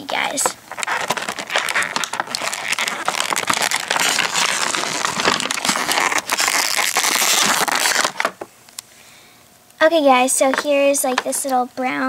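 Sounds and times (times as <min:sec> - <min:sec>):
plastic packaging crinkling: 0:00.2 - 0:08.4.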